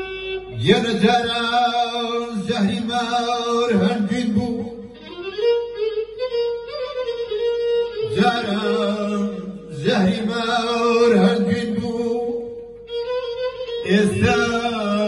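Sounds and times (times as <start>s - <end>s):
man singing into microphone: 0.5s - 4.9s, 8.0s - 12.6s, 13.8s - 15.0s.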